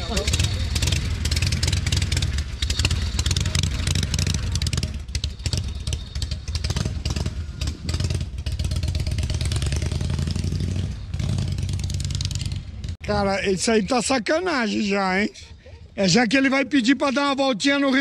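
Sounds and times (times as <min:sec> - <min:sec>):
motorcycle engine riding off: 0:00.0 - 0:13.0.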